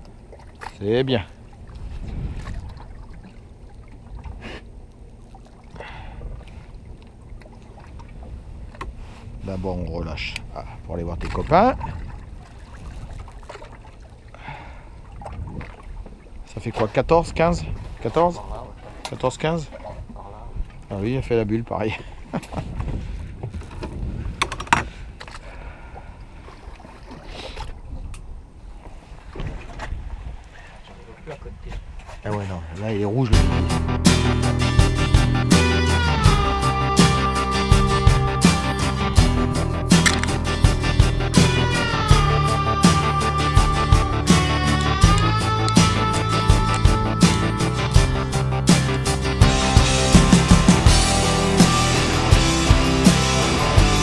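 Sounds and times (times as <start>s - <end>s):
low wind rumble: 0.0s - 26.4s
water sloshing against hull: 0.0s - 33.5s.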